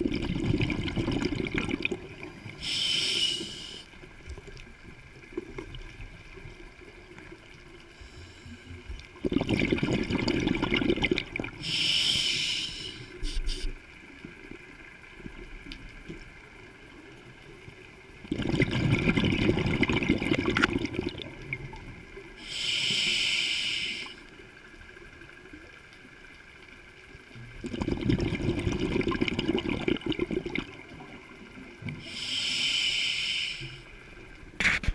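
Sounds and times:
gurgling exhaled bubbles: 0.0 - 2.6, 9.1 - 11.6, 18.2 - 22.0, 27.5 - 31.2
regulator inhalation hiss: 2.6 - 3.9, 11.6 - 13.8, 22.4 - 24.2, 32.0 - 33.9.

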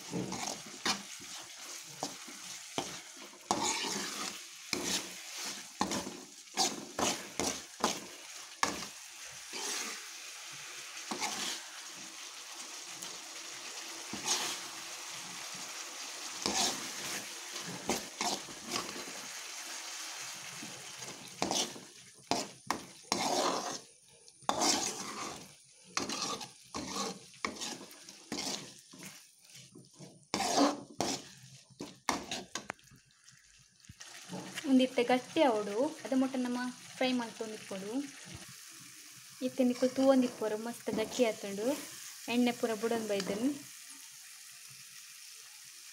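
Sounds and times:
spoon scraping a pan: 0.0 - 12.1, 14.1 - 15.6, 16.2 - 19.4, 20.4 - 32.8, 39.8 - 43.5
sauce sizzling in oil: 0.0 - 45.9.

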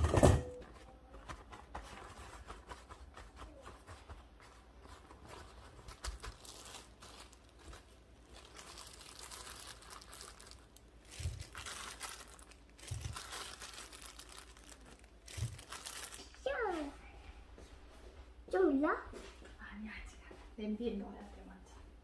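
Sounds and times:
paper towel rustling: 0.8 - 17.0
plastic glove crinkling: 1.6 - 17.0.

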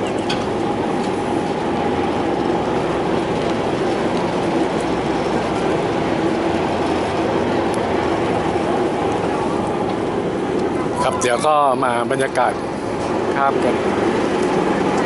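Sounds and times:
ferry engine droning: 0.0 - 15.0.

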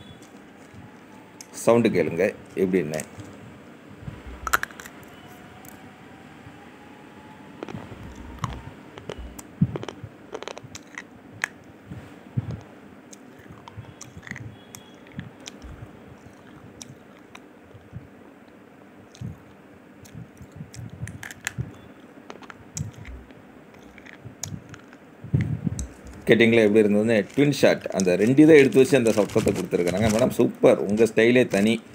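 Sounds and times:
slate pencils snapping and crunching: 4.5 - 5.0, 7.6 - 11.6, 13.2 - 17.4, 20.1 - 21.7, 22.3 - 25.0, 27.1 - 31.8.

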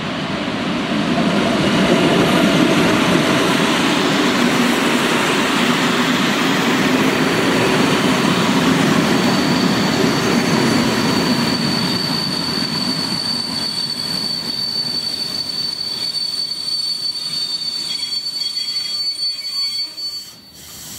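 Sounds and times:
train wheels rumbling on rails: 0.0 - 20.9
high-pitched wheel squeal: 9.0 - 20.8.

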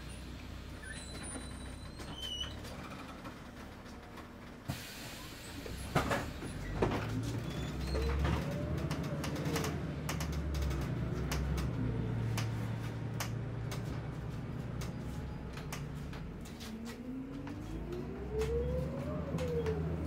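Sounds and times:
bus engine hum: 0.0 - 20.0
bus body rattling and knocking: 1.1 - 4.8, 5.4 - 16.6
engine whine: 7.9 - 20.0.

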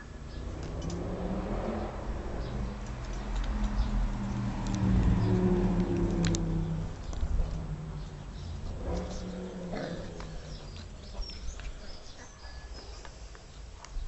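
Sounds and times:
puppies growling: 5.9 - 12.5.

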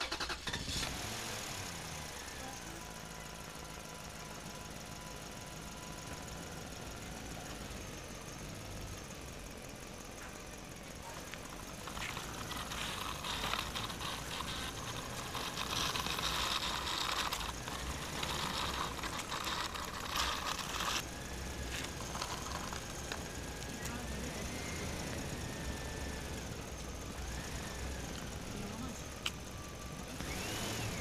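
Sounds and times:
toy wheels scraping over gritty ground: 0.0 - 4.6, 11.0 - 31.0.

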